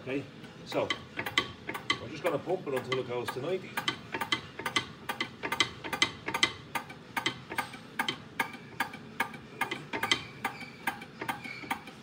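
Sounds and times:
hydraulic hand pump clicking: 0:02.8 - 0:11.9.

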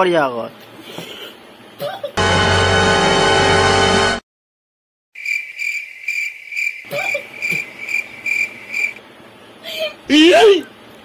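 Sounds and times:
cricket chirping: 0:05.2 - 0:09.0.

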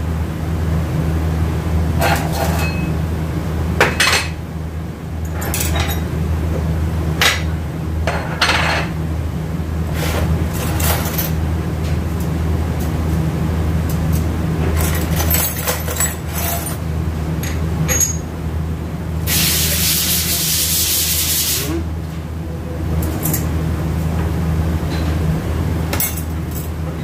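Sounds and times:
steady low hum: 0:00.0 - 0:27.0
loud steady hiss: 0:19.2 - 0:21.8.

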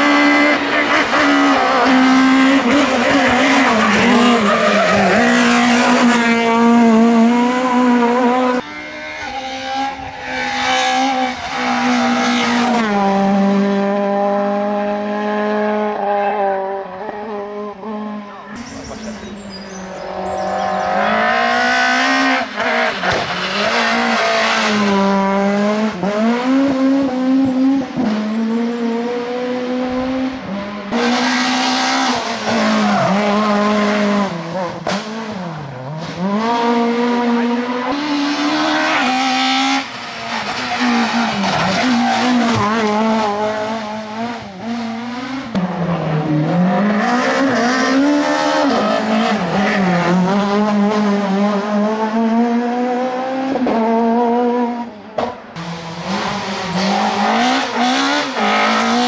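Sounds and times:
rally car engine revving high: 0:00.0 - 0:59.0.

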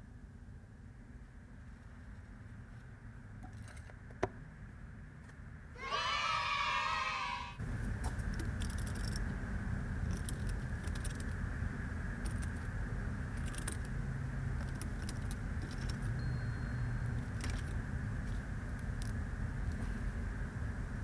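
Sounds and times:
low background hum: 0:00.0 - 0:21.0
ratchet clicks and jingles: 0:08.3 - 0:09.3.

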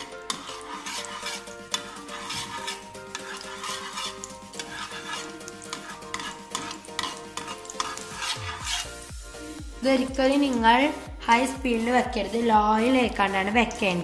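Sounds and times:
spatula scraping frying pan: 0:00.0 - 0:09.2
ghee sizzling: 0:00.0 - 0:10.5
soft background music: 0:00.0 - 0:14.0.

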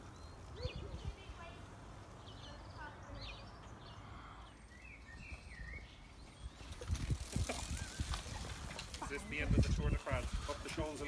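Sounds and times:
bird chirping: 0:00.0 - 0:08.7
bicycle rolling: 0:00.0 - 0:11.0
wind buffeting microphone: 0:00.4 - 0:01.6, 0:05.1 - 0:11.0.

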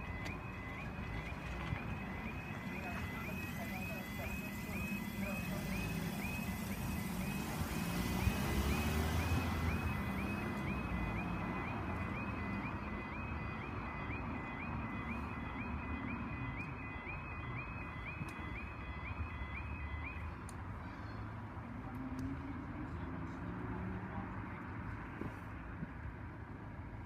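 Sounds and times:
level crossing electronic alarm: 0:00.0 - 0:20.4
car pulling away: 0:04.4 - 0:13.2.

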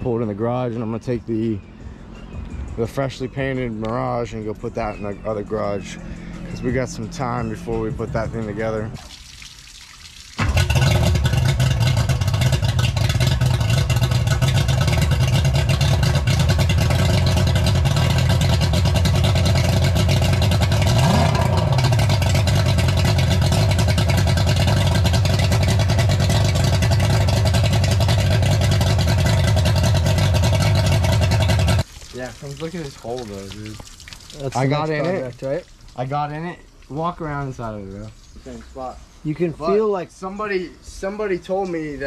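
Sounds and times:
outboard motor idling: 0:10.4 - 0:31.9.

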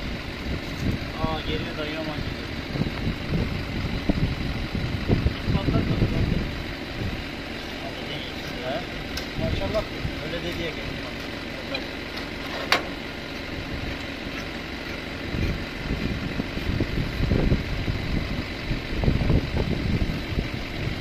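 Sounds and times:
tractor engine idling: 0:00.0 - 0:21.0.

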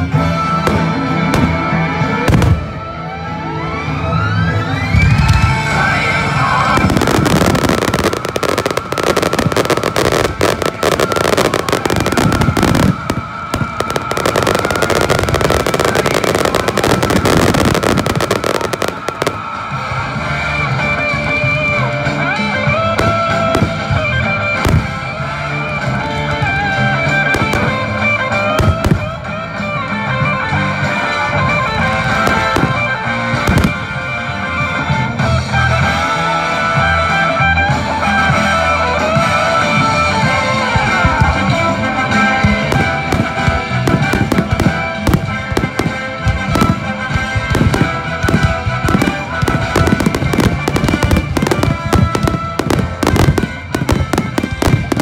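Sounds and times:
music playing: 0:00.0 - 0:55.0
crackling of firework sparks: 0:05.2 - 0:20.2, 0:40.1 - 0:55.0
sharp firework bangs: 0:06.7 - 0:20.0, 0:32.0 - 0:34.0, 0:40.2 - 0:55.0.

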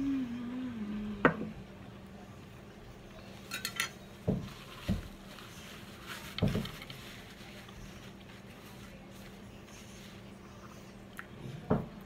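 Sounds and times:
faint steady hum: 0:00.0 - 0:12.0
tableware clinking on a plate: 0:03.5 - 0:04.0.

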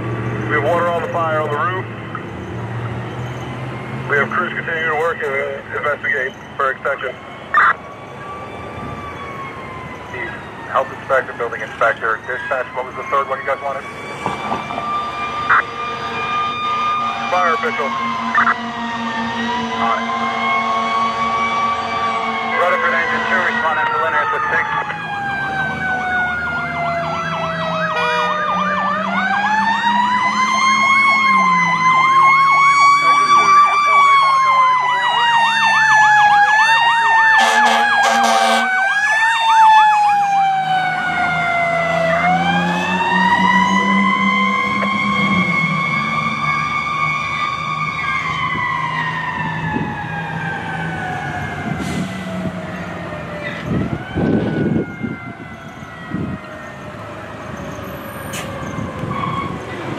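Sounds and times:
warbling siren: 0:00.0 - 0:59.9
air horn blasts: 0:28.0 - 0:28.4, 0:37.4 - 0:38.7.

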